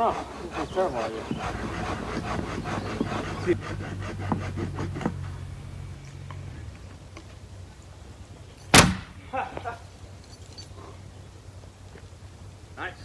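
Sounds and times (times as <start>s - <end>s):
hand saw cutting wood: 0.0s - 5.5s.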